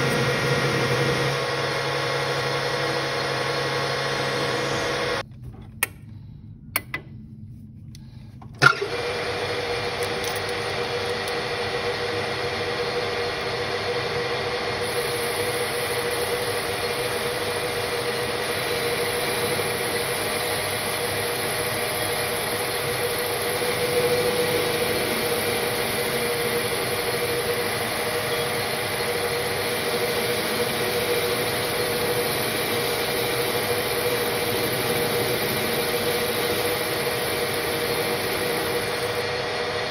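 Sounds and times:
lathe running hum: 0.0s - 5.2s, 8.6s - 39.9s
lathe starting clack: 8.6s - 39.3s.

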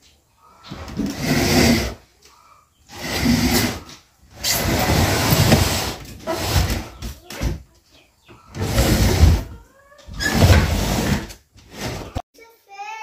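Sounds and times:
sofa scraping on tiled floor: 0.7s - 2.0s, 2.9s - 7.1s, 8.5s - 12.2s.

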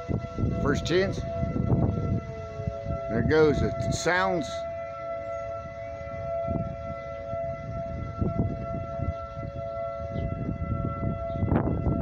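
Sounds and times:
tornado warning siren: 0.0s - 12.0s
wind rumbling on microphone: 0.0s - 12.0s.

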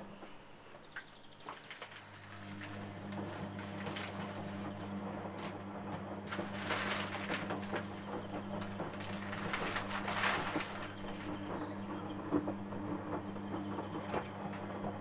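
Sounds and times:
steady low hum: 0.0s - 15.0s
plastic wrapping crinkling: 1.0s - 5.6s, 6.3s - 8.0s, 8.6s - 11.4s.

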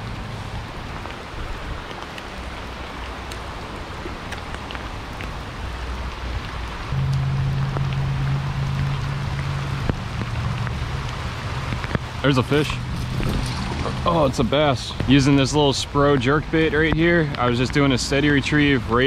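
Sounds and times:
rain falling: 0.0s - 19.0s
water rushing over rocks: 0.0s - 19.0s
low hum: 6.9s - 15.1s.

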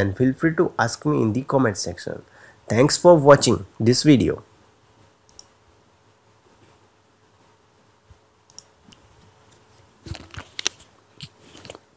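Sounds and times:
faint steady hum: 0.0s - 11.9s
computer mouse clicks: 5.3s - 5.6s, 8.5s - 9.2s.

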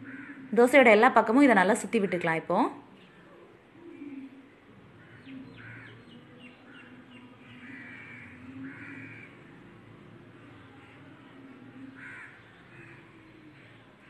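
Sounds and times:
crows cawing: 0.0s - 0.5s, 4.9s - 9.6s, 10.5s - 14.0s.

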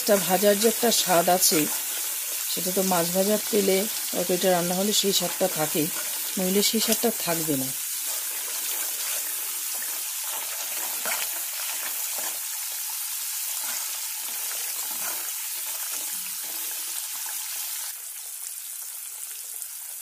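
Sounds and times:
spice paste sizzling in oil: 0.0s - 20.0s
metal spatula scraping a pan: 5.0s - 12.6s, 13.4s - 17.1s.

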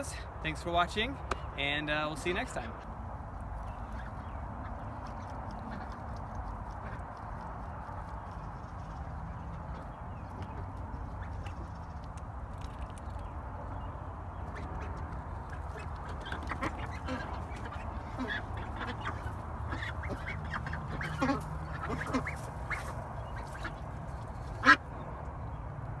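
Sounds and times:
ducks quacking: 3.7s - 8.9s, 14.4s - 25.0s.

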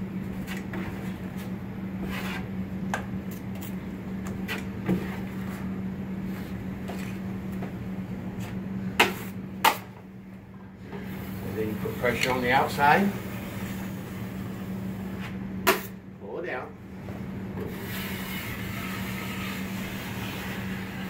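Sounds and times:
steady low hum: 0.0s - 21.0s
drywall knife scraping: 0.5s - 2.5s, 17.7s - 21.0s.

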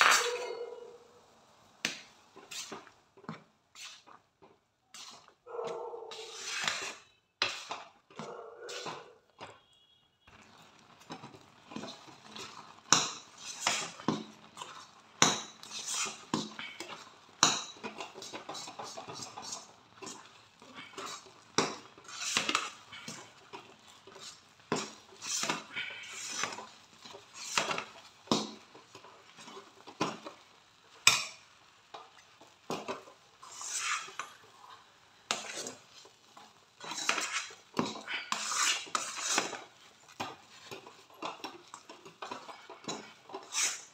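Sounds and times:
spoon scraping and knocking pan: 1.8s - 43.9s.

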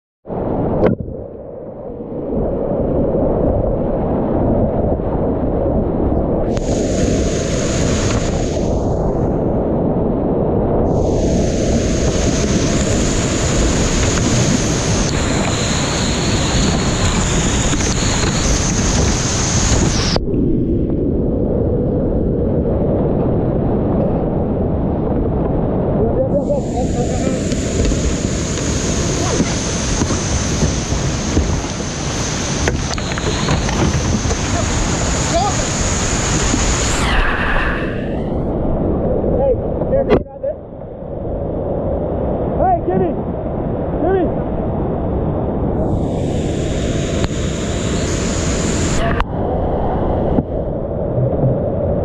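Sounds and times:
hissing splash: 6.5s - 9.2s, 10.9s - 20.3s, 26.4s - 38.4s, 45.8s - 49.3s
rushing river rapids: 26.6s - 37.2s.

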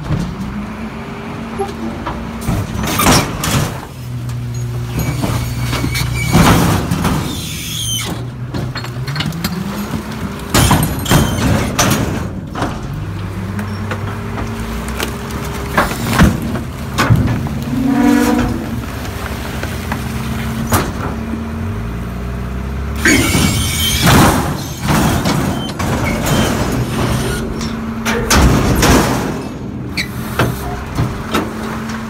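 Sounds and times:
hydraulics running: 0.0s - 32.0s
garbage truck engine revving: 0.4s - 32.0s
loud metal bangs and clatter: 2.1s - 4.0s, 4.8s - 13.1s, 15.7s - 19.0s, 23.0s - 32.0s.

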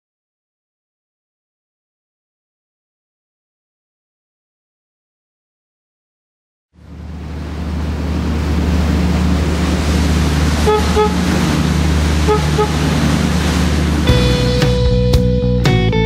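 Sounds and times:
boat engine drone: 6.8s - 15.9s.

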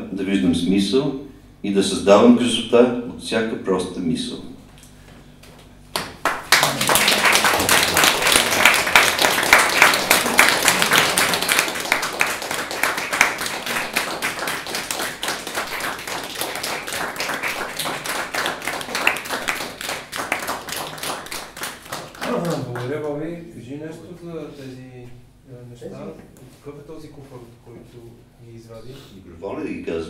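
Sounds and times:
small audience clapping: 5.5s - 23.4s.

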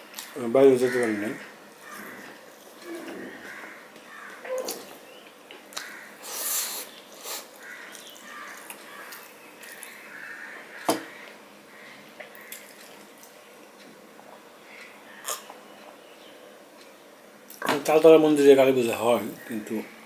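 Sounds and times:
man chewing food: 1.4s - 16.0s
hissing breath: 6.2s - 7.6s.

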